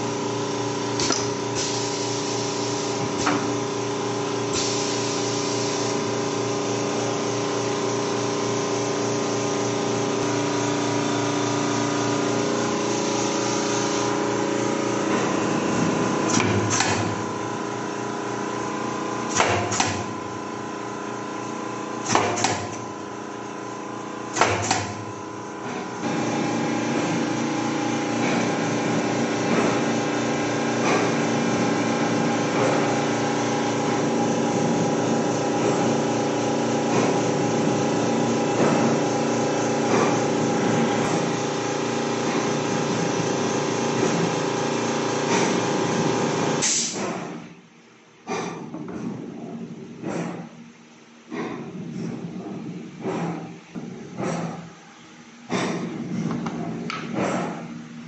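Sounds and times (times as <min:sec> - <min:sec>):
pneumatic cutter clacking: 0:00.9 - 0:03.6, 0:04.5 - 0:05.9, 0:15.1 - 0:17.3, 0:19.3 - 0:20.2, 0:22.0 - 0:22.9, 0:24.3 - 0:25.1, 0:30.8 - 0:31.3, 0:38.5 - 0:39.1, 0:45.3 - 0:45.7, 0:46.6 - 0:47.5, 0:48.2 - 0:50.6, 0:51.3 - 0:54.8, 0:55.5 - 0:57.8.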